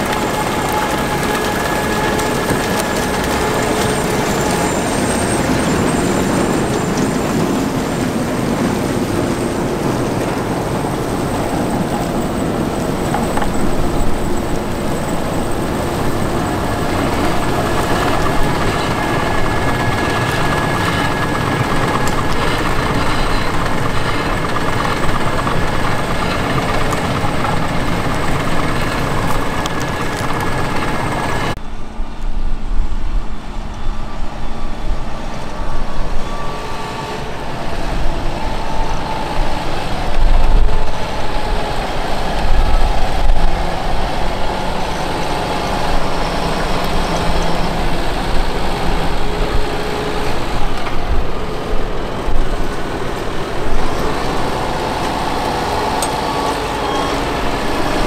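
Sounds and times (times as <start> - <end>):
soil pouring: 0.0 - 10.2
potato harvester running: 0.0 - 31.6, 35.2 - 58.0
constant high whine: 0.0 - 58.0
tractor engine: 0.0 - 58.0.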